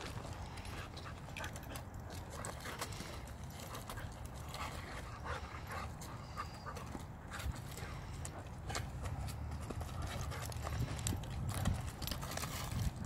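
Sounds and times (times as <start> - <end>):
paws scuffling in wood chips: 0.0 - 13.0.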